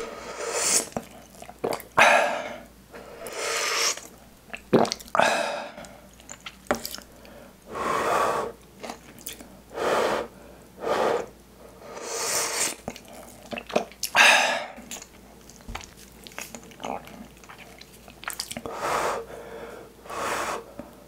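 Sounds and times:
person slurping broth: 0:00.0 - 0:01.8, 0:03.2 - 0:04.1.

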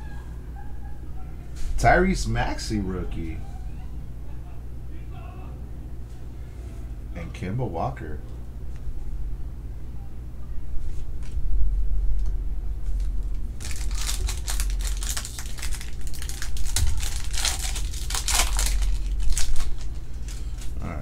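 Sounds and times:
plastic wrapper crackling: 0:12.9 - 0:20.8.

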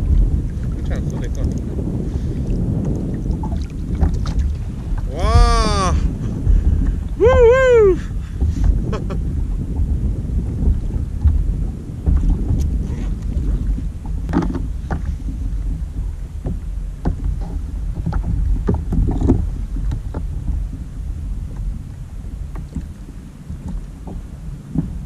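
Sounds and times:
wind rumbling on microphone: 0:00.0 - 0:25.0.

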